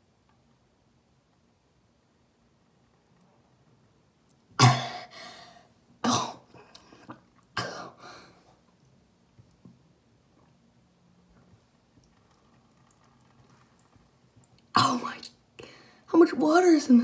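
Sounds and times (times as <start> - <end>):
person coughing loudly: 4.6 - 5.1, 6.0 - 6.5, 7.6 - 8.0.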